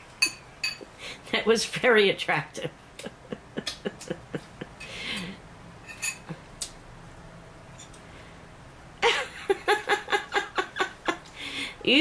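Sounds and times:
utensil clinking against a bowl: 0:00.2 - 0:00.9, 0:05.9 - 0:06.3
people laughing: 0:03.0 - 0:04.8, 0:09.0 - 0:11.3.

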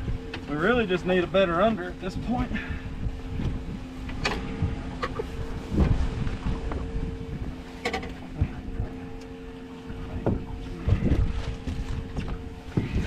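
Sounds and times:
steady mechanical hum: 0:00.0 - 0:13.0
wind buffeting microphone: 0:00.0 - 0:13.0.

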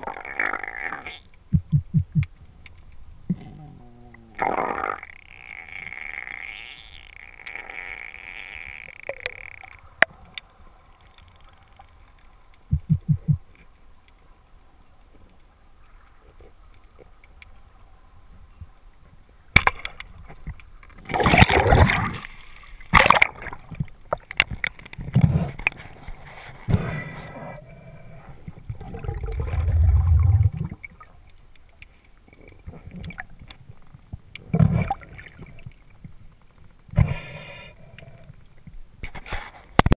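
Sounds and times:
underwater rushing and knocking: 0:01.5 - 0:02.3, 0:12.7 - 0:13.4, 0:28.6 - 0:31.0.

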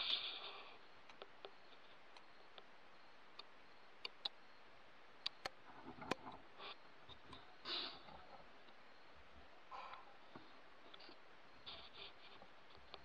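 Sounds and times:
low steady hiss: 0:00.0 - 0:13.0
faint sharp clicks: 0:01.0 - 0:02.7, 0:03.3 - 0:04.4.

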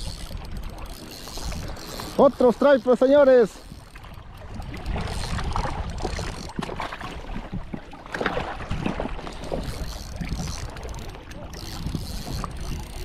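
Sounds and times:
waves lapping against rocks: 0:00.0 - 0:13.0
wind buffeting microphone: 0:00.0 - 0:13.0.

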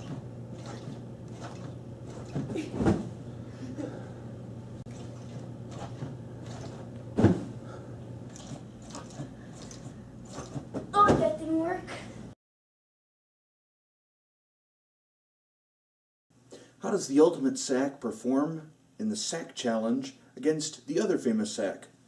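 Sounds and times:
thumps on bean bag chair: 0:02.4 - 0:03.1, 0:07.2 - 0:07.5.

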